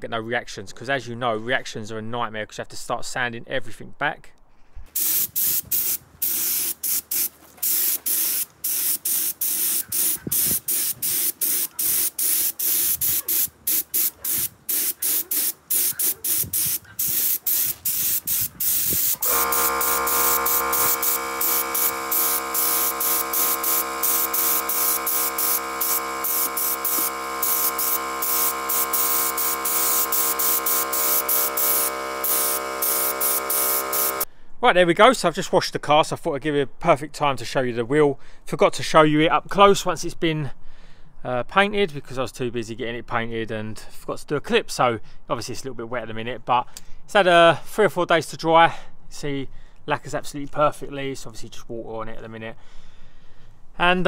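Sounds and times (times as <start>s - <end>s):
spray can hissing: 5.0s - 34.3s.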